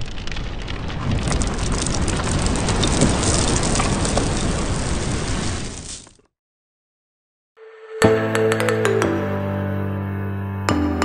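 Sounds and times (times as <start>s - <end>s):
crackling rain-like hiss: 0.0s - 6.2s.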